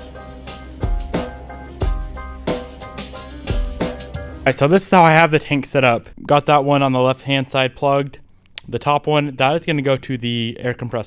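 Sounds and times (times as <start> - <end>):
drum-kit beat: 0.0 - 4.7.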